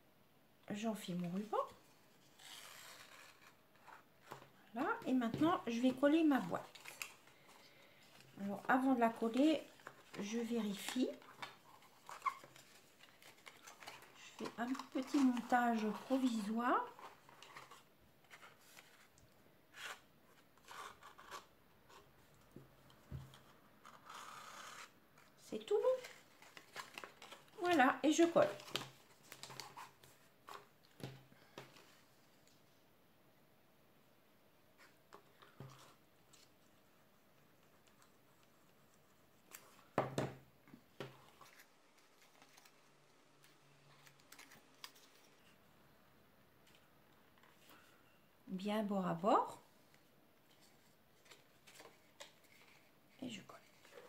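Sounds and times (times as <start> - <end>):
cardstock rustling and scraping: 8.6 - 22.1.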